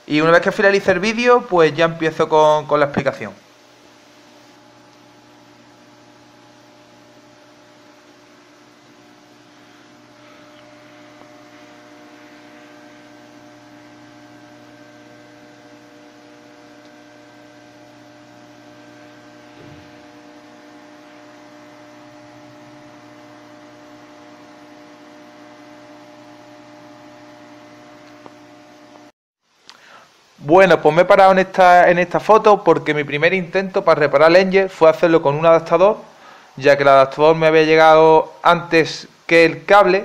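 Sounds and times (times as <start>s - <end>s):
electrical hum of equipment: 0.0s - 40.0s
faint hiss: 29.4s - 40.0s.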